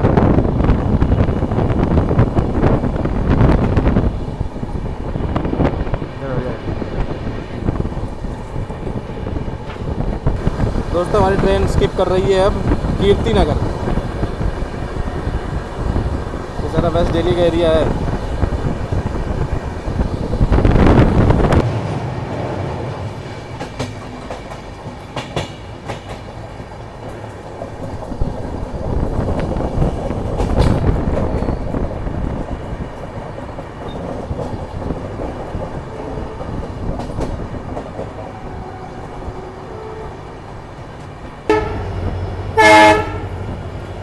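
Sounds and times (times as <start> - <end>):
rumble of train wheels on rail: 0.0 - 44.0
wheels clicking over rail joints: 23.5 - 39.5.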